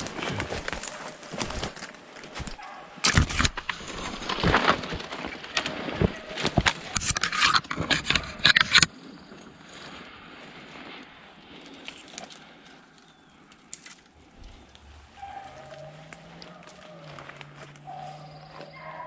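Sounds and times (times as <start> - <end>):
footsteps crunching through dry leaves: 0.0 - 2.8, 14.0 - 19.0.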